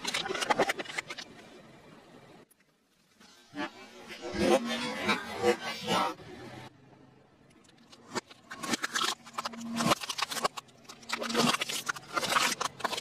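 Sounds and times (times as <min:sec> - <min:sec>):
plastic cracking under car tyre: 0:07.8 - 0:13.0.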